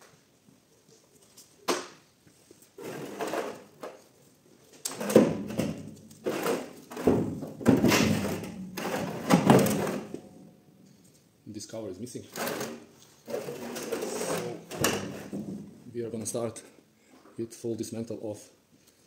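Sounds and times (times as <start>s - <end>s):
metal casing scraping on metal drum: 12.4s - 15.4s.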